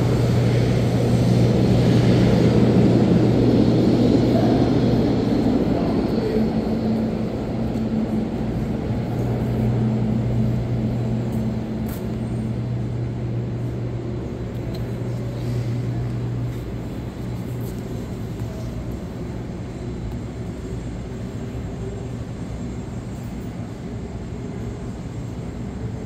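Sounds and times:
low droning machinery hum: 0.0 - 26.0
subway station rumble: 0.0 - 26.0.

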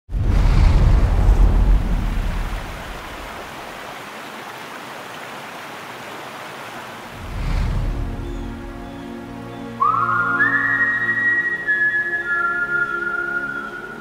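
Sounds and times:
deep rumble: 0.1 - 3.4, 7.2 - 8.9
river rapids rushing: 1.3 - 14.0.

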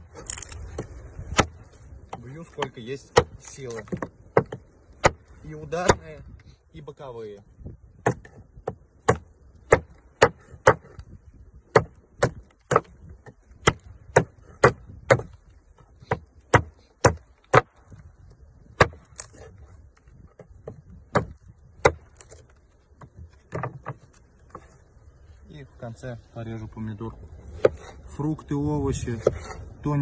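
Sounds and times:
knife chopping into wood: 0.7 - 6.2, 8.0 - 11.0, 11.7 - 18.0, 18.7 - 24.7, 27.4 - 28.0, 29.1 - 29.6.

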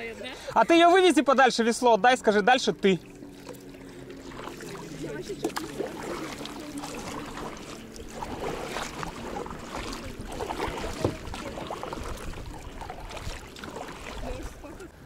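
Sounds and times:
water splashing around kayak: 0.3 - 15.0.

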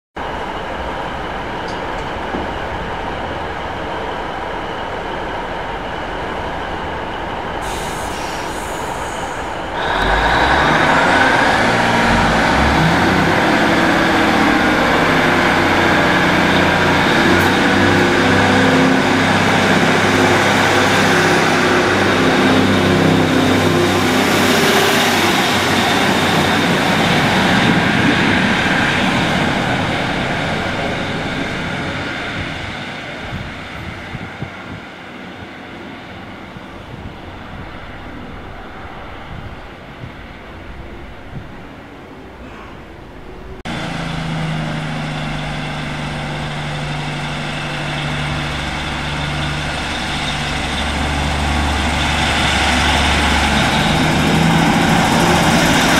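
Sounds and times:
train diesel engines: 0.2 - 55.9
brief hiss: 7.6 - 10.1
rising whine: 8.5 - 33.8, 36.7 - 55.9.

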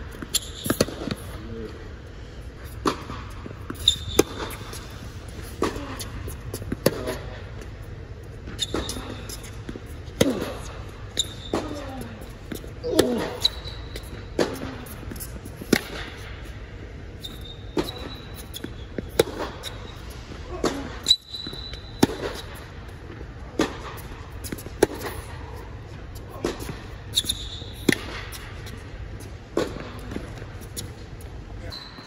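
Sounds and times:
tennis balls struck and bouncing: 0.1 - 1.4, 2.6 - 31.4
shoe squeaks: 0.2 - 0.8, 3.7 - 5.0, 8.5 - 9.6, 11.1 - 15.4, 17.1 - 20.2, 21.0 - 22.6, 27.0 - 28.8, 31.6 - 32.0.

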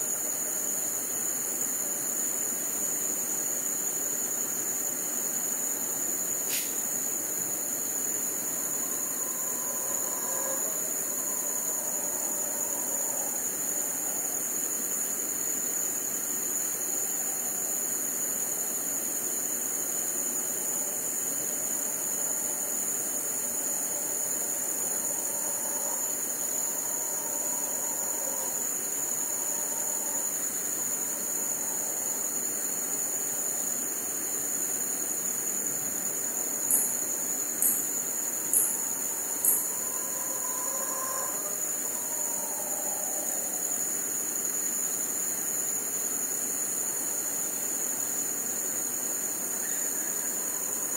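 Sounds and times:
crickets trilling: 0.0 - 50.9
distant howler monkey calls: 6.9 - 34.0, 37.6 - 45.0, 49.3 - 50.9.

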